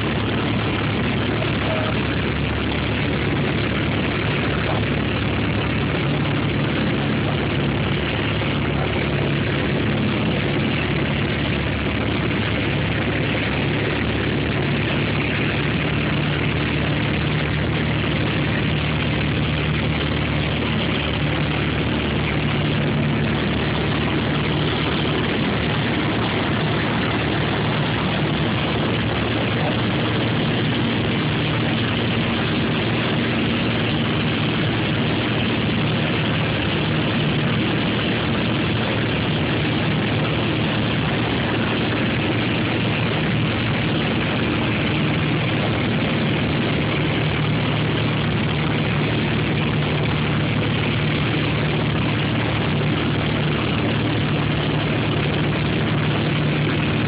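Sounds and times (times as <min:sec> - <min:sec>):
propeller plane engine from cabin: 0:00.0 - 0:57.0.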